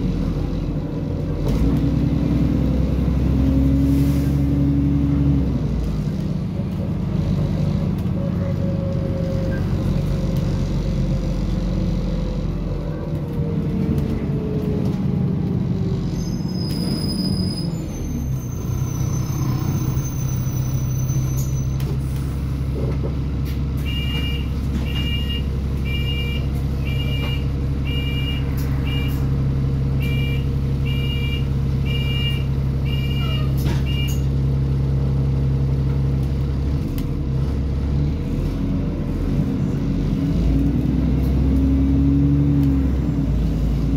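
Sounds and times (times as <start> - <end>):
bus engine idling: 0.0 - 40.4
brake squeal: 8.2 - 10.1, 15.8 - 22.6, 30.0 - 34.4.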